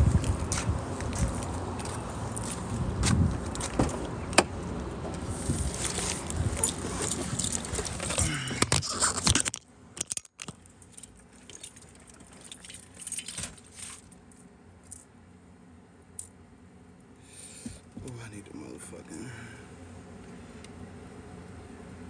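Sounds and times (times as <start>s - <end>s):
outdoor noise: 0.0s - 22.0s
car door shutting: 3.6s - 5.2s
car keys jingling: 5.8s - 8.2s.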